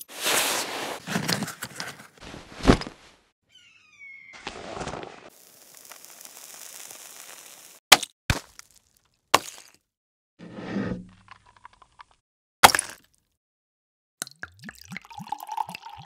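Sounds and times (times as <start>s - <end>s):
ice crunching: 0.0s - 2.9s, 4.5s - 9.8s.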